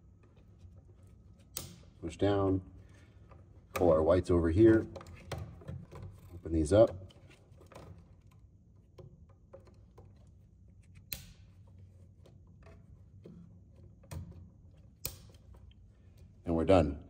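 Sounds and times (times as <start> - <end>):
handling of wires: 0.0 - 16.8.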